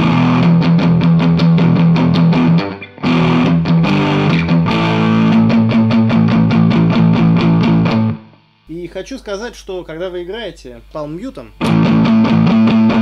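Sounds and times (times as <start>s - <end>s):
distorted electric guitar riff: 0.0s - 8.7s, 11.5s - 13.0s.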